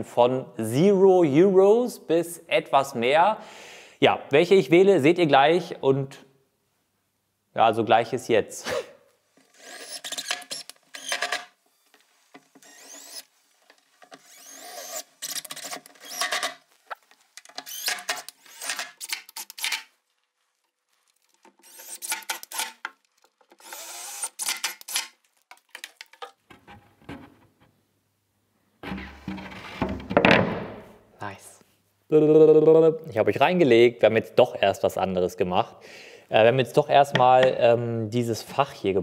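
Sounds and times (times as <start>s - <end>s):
cordless drill driving screws: 9.4s - 13.3s, 14.0s - 16.7s, 17.4s - 19.9s, 21.5s - 22.9s, 23.5s - 25.2s.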